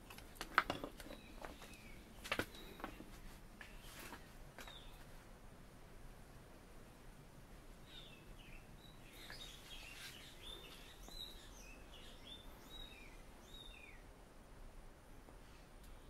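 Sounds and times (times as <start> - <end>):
background hiss: 0.0 - 16.0
faint bird chirps: 1.0 - 5.2, 7.8 - 14.1.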